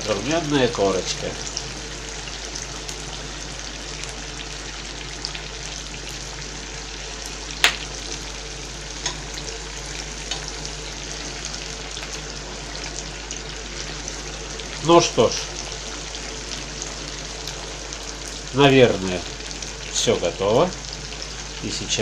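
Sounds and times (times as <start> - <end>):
duck pieces sizzling in pan: 0.0 - 22.0
fat popping and crackling: 7.6 - 8.2.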